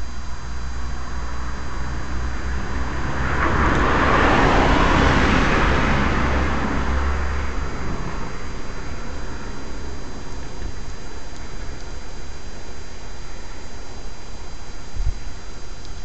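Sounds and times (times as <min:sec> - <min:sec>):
faint high whine: 0:00.0 - 0:16.0
car driving past: 0:00.5 - 0:12.4.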